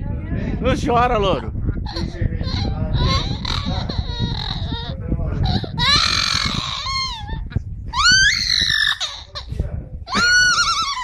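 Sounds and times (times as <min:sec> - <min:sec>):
parrot imitating crying baby: 0:01.9 - 0:09.5, 0:10.1 - 0:11.0.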